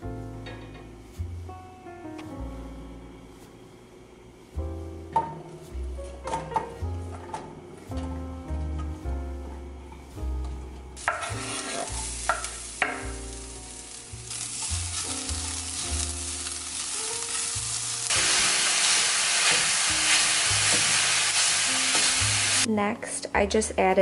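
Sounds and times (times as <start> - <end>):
spatula stirring in skillet: 11.0 - 12.9
beef sizzling in pan: 11.0 - 22.7
onions sizzling in oil: 11.0 - 22.7.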